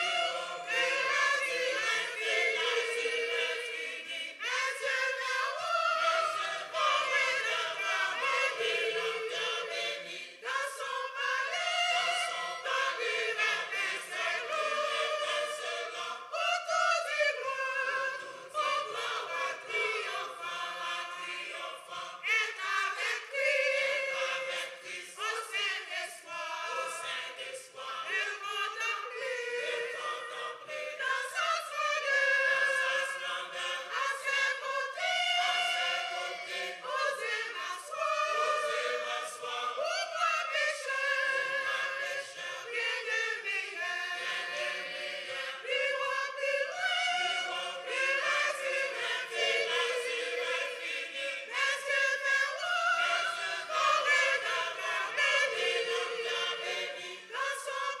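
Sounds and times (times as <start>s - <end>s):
choir singing a hymn: 0.0s - 58.0s.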